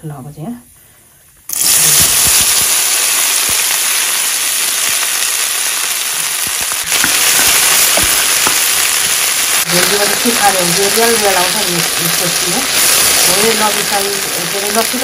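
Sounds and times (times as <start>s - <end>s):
okra sizzling in hot oil: 1.5s - 15.0s
wooden spatula knocking on pan: 7.0s - 8.6s.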